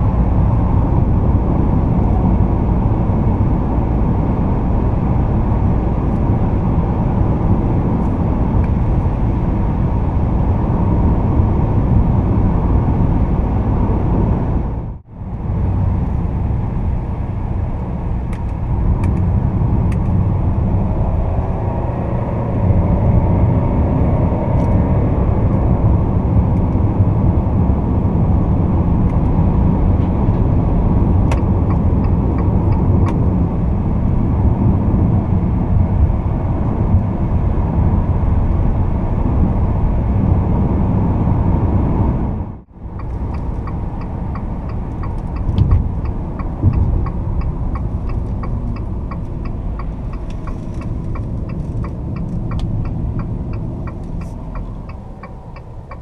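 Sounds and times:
car engine tyre and wind noise: 0:00.0 - 0:56.0
turn signal ticking: 0:30.3 - 0:33.6, 0:42.8 - 0:56.0.

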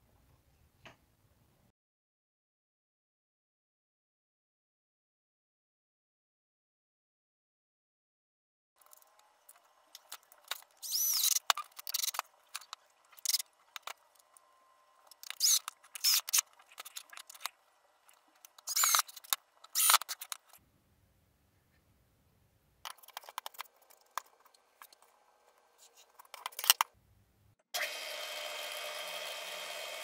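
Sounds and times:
cordless drill driving screws: 0:15.3 - 0:16.4, 0:18.6 - 0:20.2, 0:27.8 - 0:30.0.

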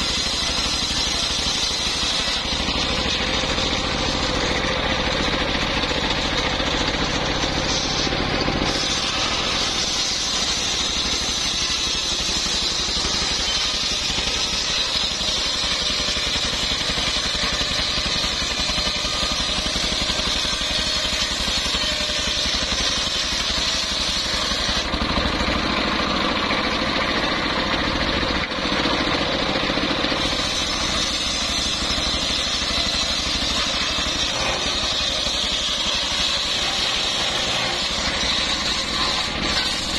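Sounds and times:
engine running under load: 0:00.0 - 0:39.9
saw blade whining through wood: 0:00.0 - 0:39.9.

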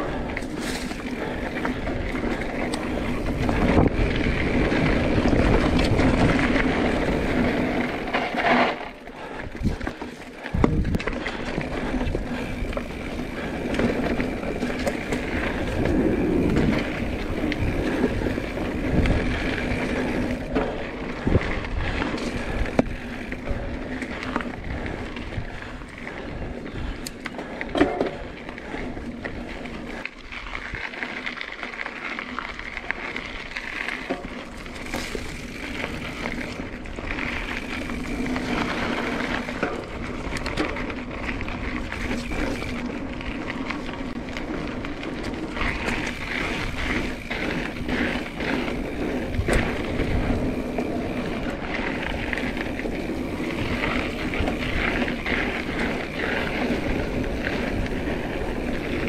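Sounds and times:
bike tyre and trail noise: 0:00.0 - 0:59.0
bike knocks and rattles: 0:09.6 - 0:23.7, 0:27.4 - 0:28.4.

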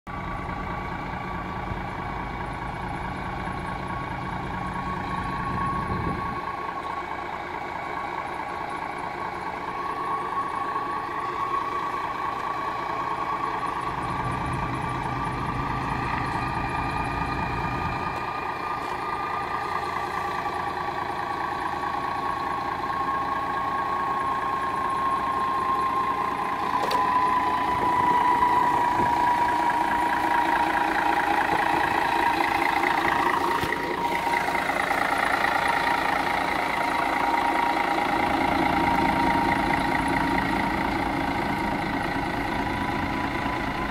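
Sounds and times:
diesel engine idling: 0:00.1 - 0:43.9
turbocharger whine: 0:00.1 - 0:43.9.

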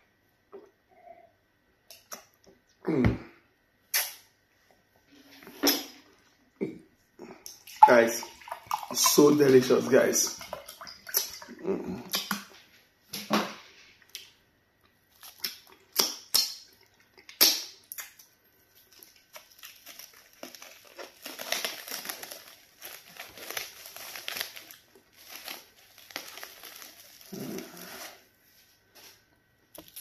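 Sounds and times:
plastic wrap crinkling: 0:18.7 - 0:28.2, 0:29.7 - 0:30.0.

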